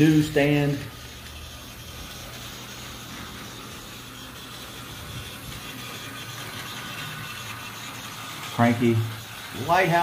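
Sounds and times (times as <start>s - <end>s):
toy train motor whine: 0.0s - 10.0s
toy train wheels rolling: 0.0s - 10.0s.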